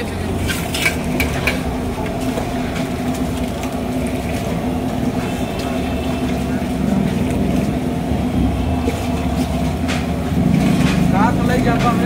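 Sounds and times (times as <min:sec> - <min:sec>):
steady mechanical drone: 0:00.0 - 0:12.0
metal cookware clinking: 0:00.3 - 0:02.4.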